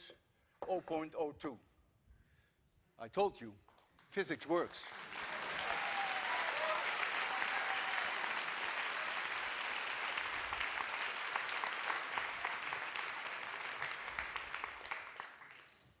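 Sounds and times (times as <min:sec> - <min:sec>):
audience applauding: 0:04.7 - 0:15.9.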